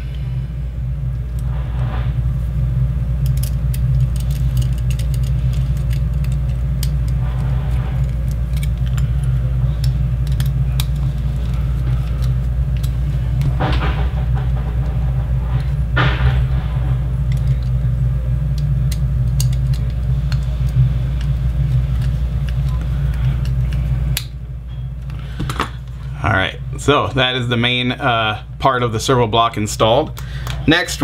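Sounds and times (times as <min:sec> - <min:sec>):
low hum: 0:00.0 - 0:31.0
handling of parts: 0:03.2 - 0:26.1.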